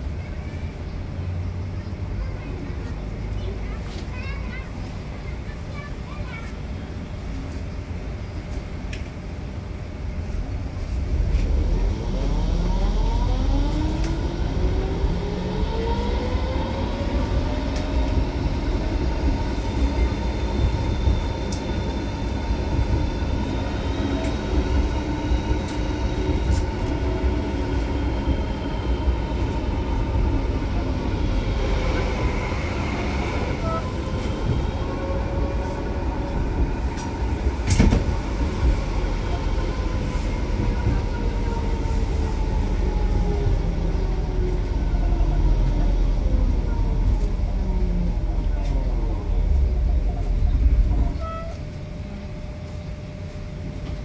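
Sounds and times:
wheels rumbling on rails: 0.0 - 54.0
tram motor whine: 8.0 - 54.0.

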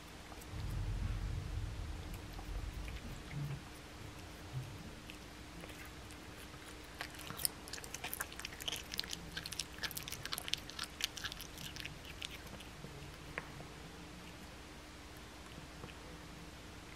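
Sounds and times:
cat chewing with mouth clicks: 1.9 - 13.6.

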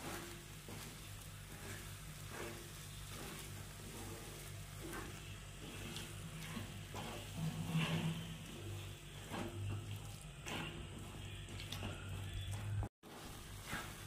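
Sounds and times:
faint sizzle: 0.0 - 14.0
wooden spatula scraping pan: 0.0 - 14.0.

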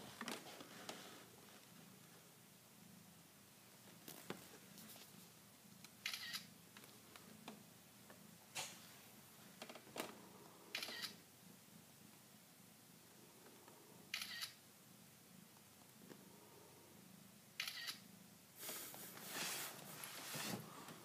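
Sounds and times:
phone camera shutter clicks: 6.0 - 6.5, 10.7 - 11.2, 14.1 - 14.6, 17.6 - 18.0.

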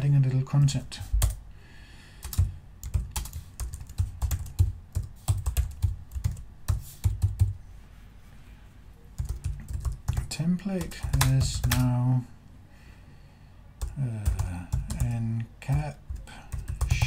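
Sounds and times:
keyboard typing: 2.2 - 7.6, 9.2 - 11.9, 13.8 - 17.0.

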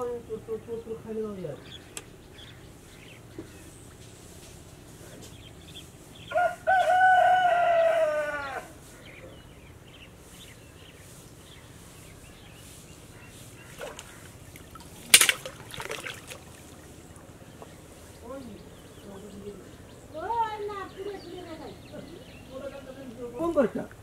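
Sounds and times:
rooster crowing: 6.3 - 8.8.

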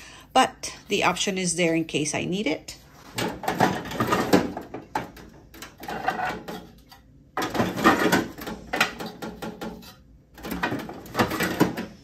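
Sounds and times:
plastic drawers scraping on metal: 3.0 - 12.0.

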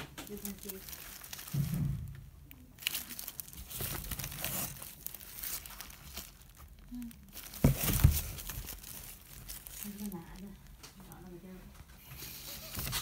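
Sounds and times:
plastic gloves crinkling: 0.0 - 13.0.

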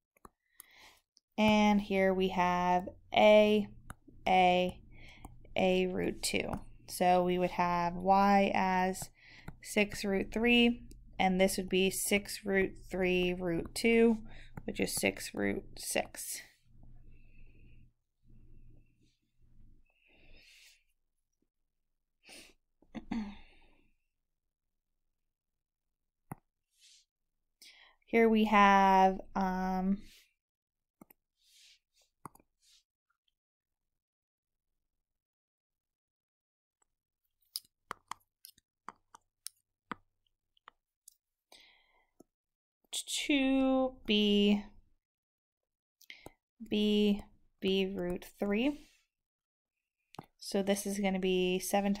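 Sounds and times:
person breathing softly: 0.4 - 1.0, 4.9 - 5.5, 9.1 - 9.6, 14.2 - 14.6, 19.8 - 20.9, 41.5 - 42.1.

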